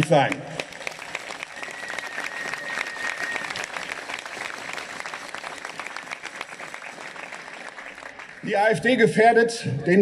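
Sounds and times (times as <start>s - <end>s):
crowd applauding: 0.0s - 8.9s
thin steady whistle tone: 1.6s - 3.6s.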